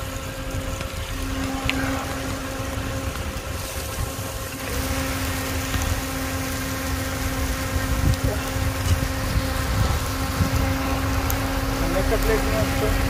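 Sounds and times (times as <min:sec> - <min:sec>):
low rumble: 0:00.0 - 0:13.0
steady machine hum: 0:00.0 - 0:13.0.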